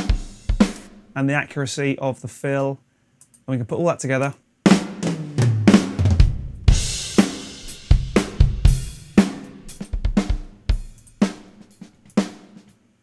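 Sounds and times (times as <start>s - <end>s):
drum kit kick and snare beat: 0.0s - 1.2s, 4.6s - 12.7s.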